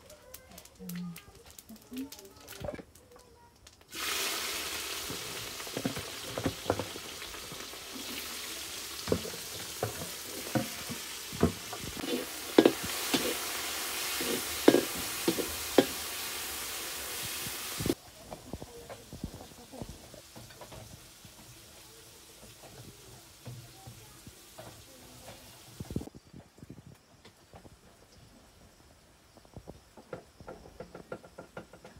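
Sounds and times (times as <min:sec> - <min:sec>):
onions sizzling in hot oil: 0:03.8 - 0:26.1
spatula scraping a wok: 0:08.0 - 0:18.0.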